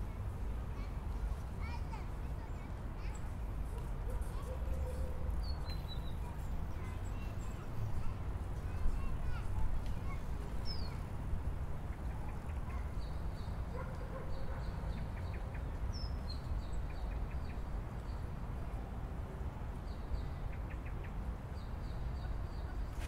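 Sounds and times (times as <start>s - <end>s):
small birds chirping: 1.6s - 8.1s, 8.7s - 11.1s, 11.8s - 18.3s.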